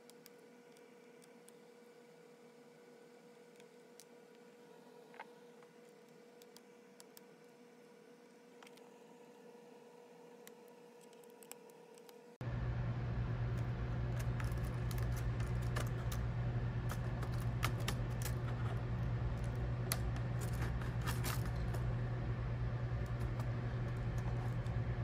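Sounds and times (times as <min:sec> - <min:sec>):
steady low hum: 0:00.0 - 0:25.0
plastic keyboard keys clicking: 0:14.2 - 0:16.2, 0:16.9 - 0:18.5.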